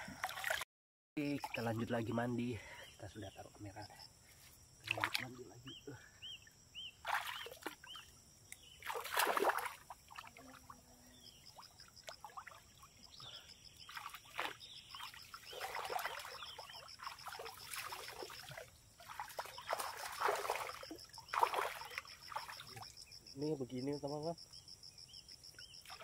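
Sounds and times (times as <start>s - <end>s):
water splashing and sloshing: 0.0s - 0.6s, 4.8s - 5.6s, 7.0s - 23.0s, 25.7s - 26.0s
high insect trill: 1.2s - 26.0s.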